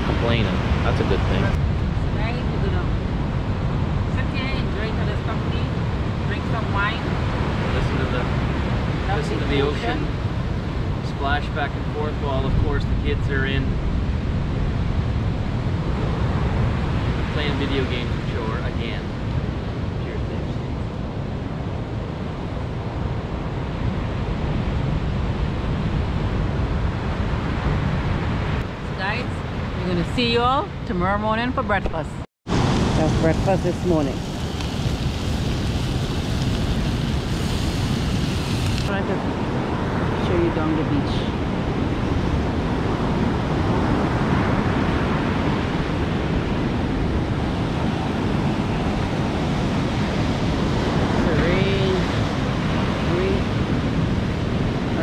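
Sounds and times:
ocean surf washing on beach: 0.0 - 30.4, 32.5 - 55.0
wind gusting on microphone: 0.0 - 55.0
surf breaking on beach: 32.5 - 55.0.

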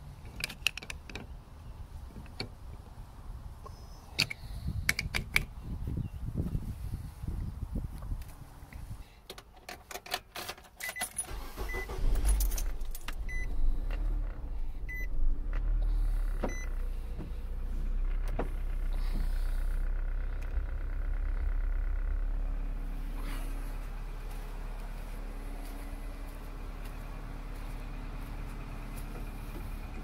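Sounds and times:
keys jangling: 9.8 - 11.3, 12.1 - 13.2
car engine starting and idling: 10.8 - 30.0
short electronic beeps: 13.3 - 13.5, 14.9 - 15.1.

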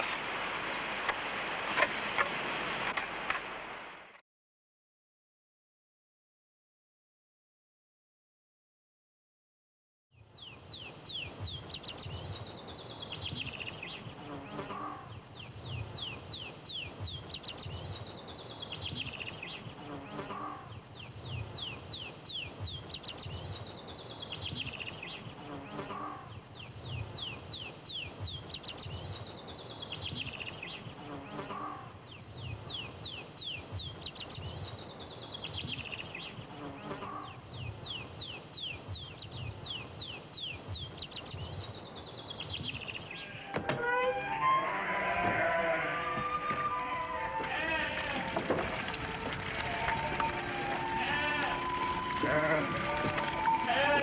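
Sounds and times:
low rumbling hiss: 0.0 - 4.1.

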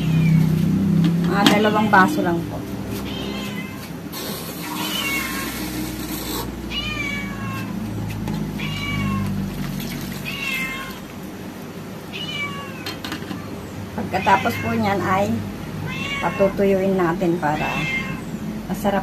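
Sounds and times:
cat meowing: 0.0 - 0.5, 3.0 - 7.8, 8.5 - 9.4, 10.2 - 11.1, 12.1 - 15.2, 15.8 - 16.6, 17.4 - 18.3
hiss: 4.1 - 6.6.

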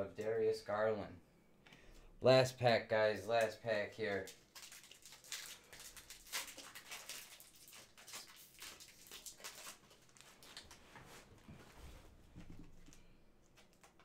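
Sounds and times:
wrapper crinkling: 4.0 - 11.0.

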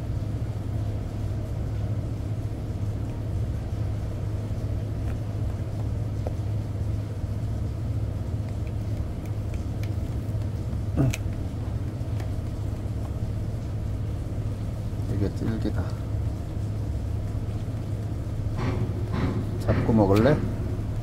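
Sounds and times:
ship engine hum: 0.0 - 21.0
dog chewing treat: 8.3 - 15.0.

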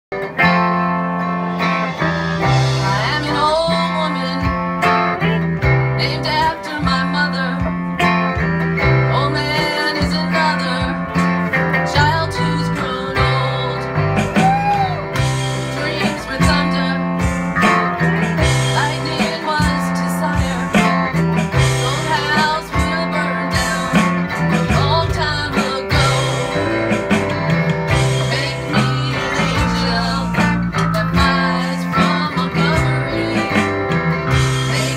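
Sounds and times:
bass line: 0.1 - 34.9
electric guitar: 0.1 - 34.9
strummed acoustic guitar: 0.1 - 34.9
woman singing: 2.6 - 4.9, 5.9 - 7.8, 8.9 - 11.2, 11.8 - 14.9, 15.6 - 17.4, 18.4 - 27.0, 28.0 - 34.9.

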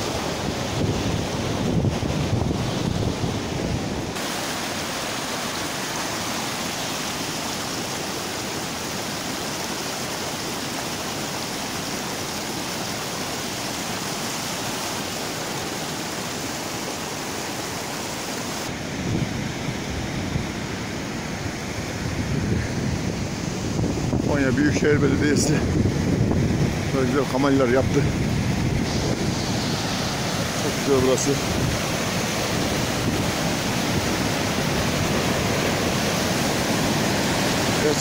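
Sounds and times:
wind buffeting microphone: 0.0 - 4.2, 18.7 - 38.0
stream rushing: 0.0 - 38.0.

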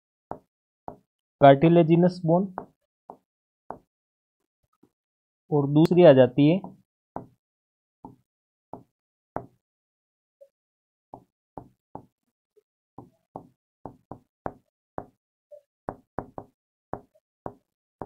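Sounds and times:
pen tapping on writing board: 0.3 - 1.1, 2.6 - 3.9, 6.6 - 7.4, 8.0 - 9.6, 11.2 - 12.1, 13.0 - 15.2, 15.9 - 17.7.

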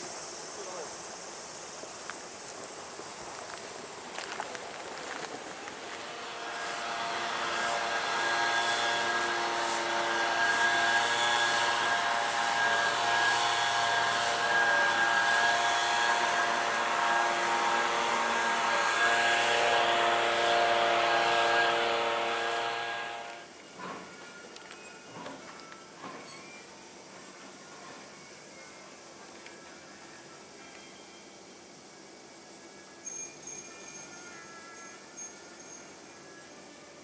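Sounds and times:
rushing hiss of spray: 0.0 - 23.5
cleaning machine motor hum: 5.8 - 23.4.

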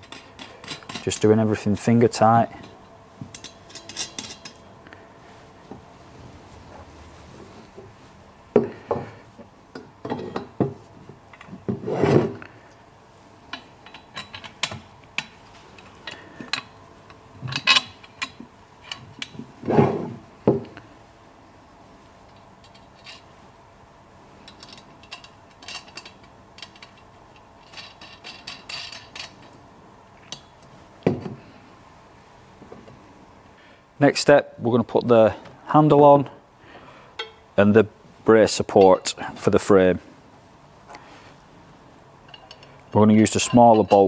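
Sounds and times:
metal tubes knocking and clinking: 37.2 - 37.4.

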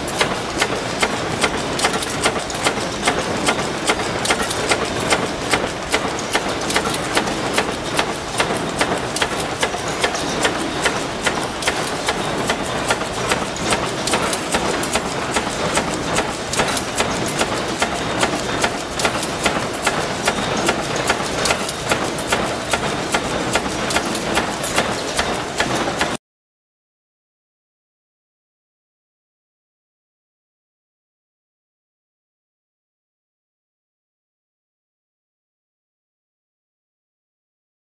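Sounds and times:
machine running noise: 0.0 - 26.2.

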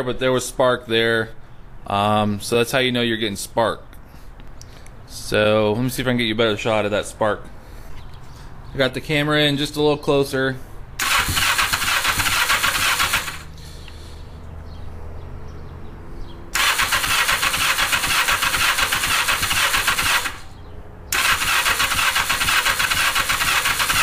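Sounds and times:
motorcycle engine cranking: 11.0 - 13.6, 16.6 - 24.0.

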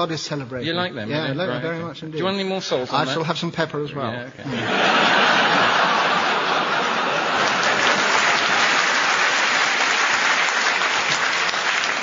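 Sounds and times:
audience applauding: 4.7 - 12.0.

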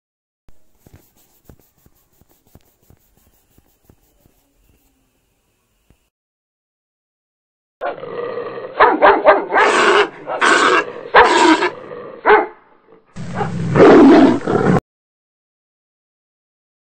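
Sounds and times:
dog yelping and barking: 8.8 - 12.5.

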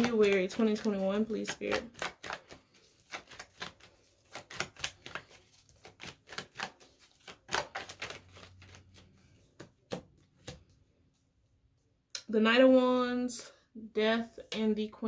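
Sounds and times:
cards being shuffled: 0.0 - 10.8.

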